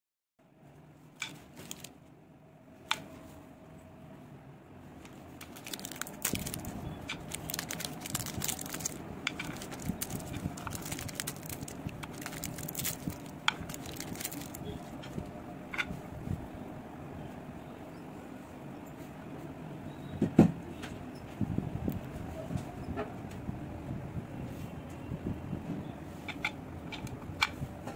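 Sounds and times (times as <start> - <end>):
plastic candy wrappers crackling: 1.3 - 1.9, 5.4 - 14.8.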